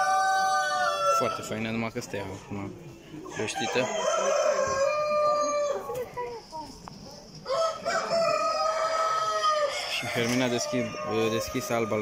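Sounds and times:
rooster crowing: 0.0s - 1.5s, 3.3s - 5.9s, 7.5s - 12.0s.

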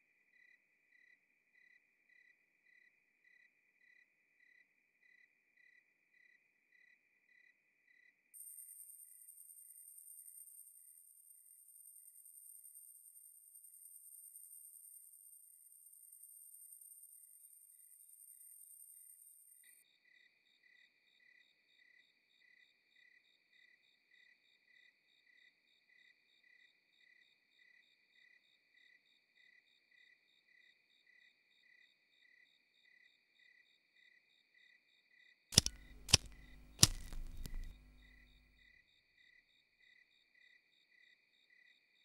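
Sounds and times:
field crickets chirping: 0.0s - 35.0s
match or lighter strikes: 35.6s - 38.0s.

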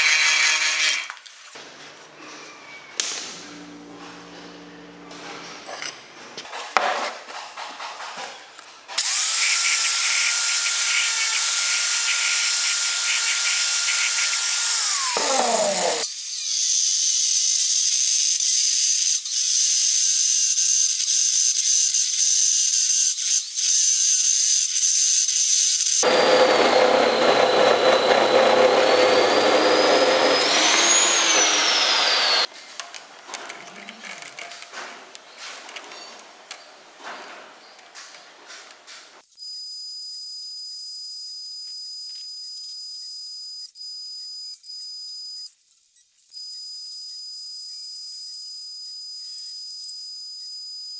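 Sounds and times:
chop saw cutting steel: 0.0s - 1.1s, 9.0s - 16.1s, 25.9s - 32.5s
motor winding down: 9.0s - 16.1s, 26.0s - 32.5s.

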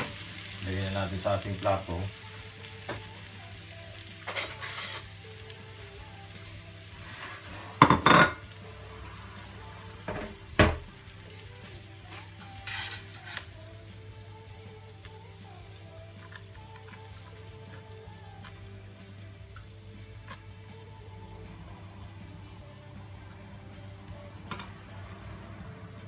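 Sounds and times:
noodles sizzling in pan: 0.0s - 26.0s
plate knocking on stone counter: 7.8s - 8.4s.

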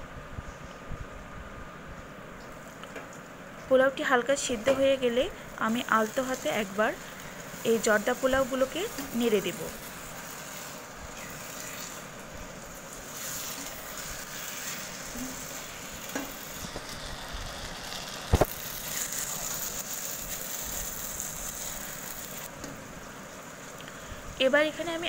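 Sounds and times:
rice sizzling in a pan: 3.7s - 25.0s
spatula stirring: 5.6s - 22.5s.

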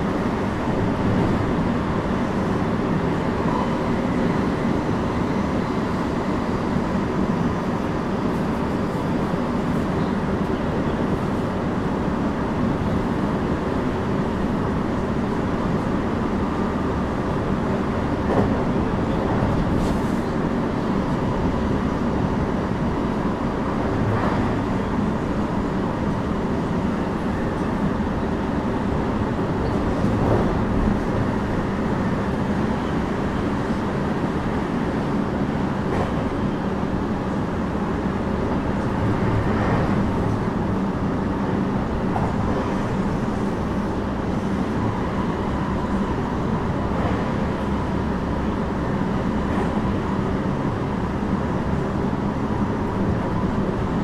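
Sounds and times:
train wheels rumbling on rails: 0.0s - 54.0s.

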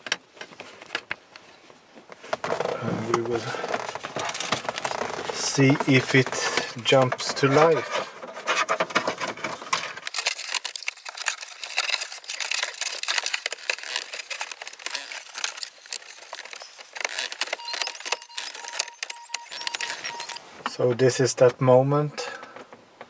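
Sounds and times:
wiring harnesses rustling: 0.0s - 21.1s
plastic unit clicking and scraping: 2.3s - 20.4s.

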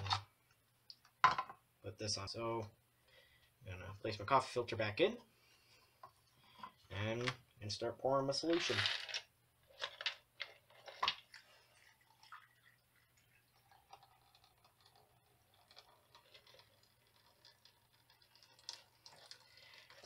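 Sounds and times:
liquid trickling into filter: 10.7s - 20.0s.

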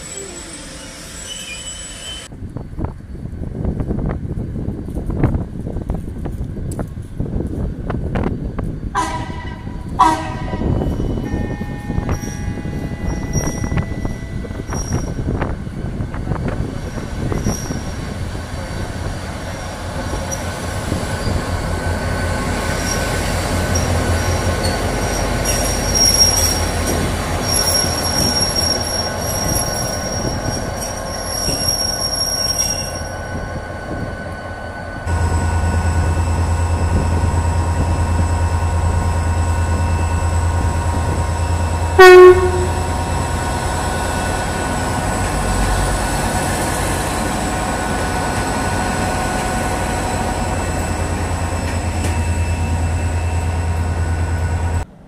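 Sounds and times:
wheel and brake squeal: 0.0s - 2.3s, 10.8s - 15.2s, 16.8s - 18.1s, 19.5s - 35.0s
diesel locomotive engine: 0.0s - 55.0s
loud horn blast: 9.0s - 10.8s, 41.9s - 43.0s.

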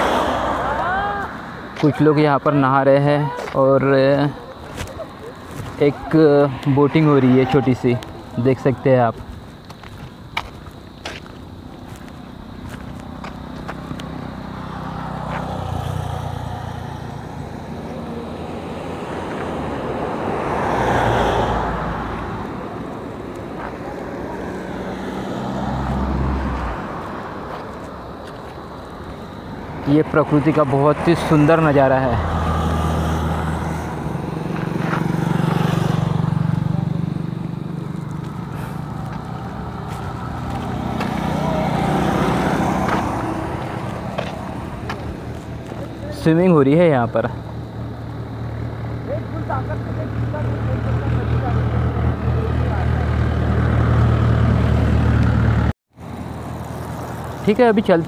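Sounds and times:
engine hum: 0.0s - 58.0s
engine running with fluttering hum: 47.1s - 58.0s.

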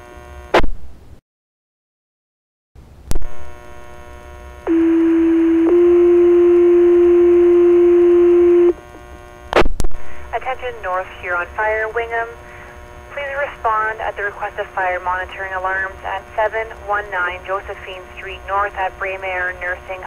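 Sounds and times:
two-tone radio page: 10.1s - 20.0s.

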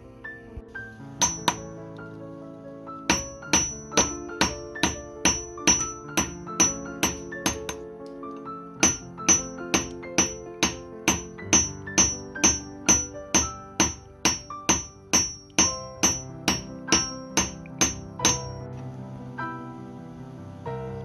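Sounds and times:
background music with mallet notes: 1.1s - 2.2s, 3.0s - 18.8s
hammer clanging on metal: 1.2s - 1.7s, 3.1s - 7.8s, 8.8s - 18.6s.

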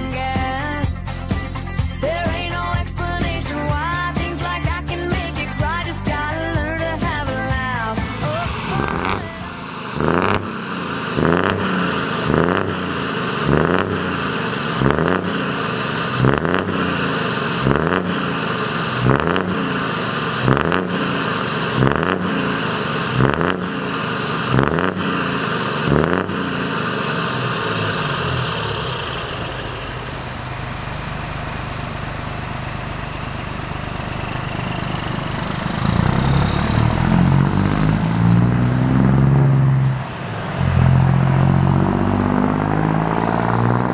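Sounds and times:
truck engine revving: 3.0s - 43.9s.

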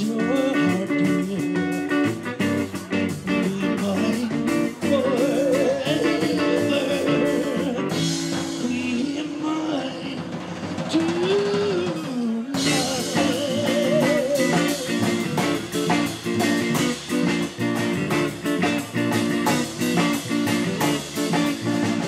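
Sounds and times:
man singing: 0.0s - 2.2s, 3.1s - 16.0s
double bass: 0.0s - 9.2s, 12.6s - 22.0s
electric guitar: 0.0s - 22.0s
drum beat: 1.2s - 22.0s.

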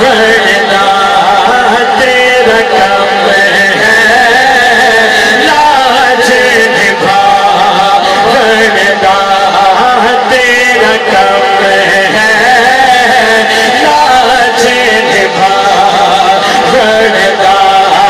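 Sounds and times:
man singing devotional song: 0.0s - 18.0s.

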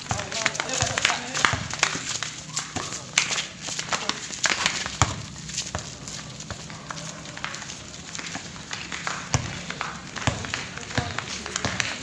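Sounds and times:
basketball bouncing on concrete: 0.0s - 12.0s
footfalls on court: 0.0s - 12.0s.

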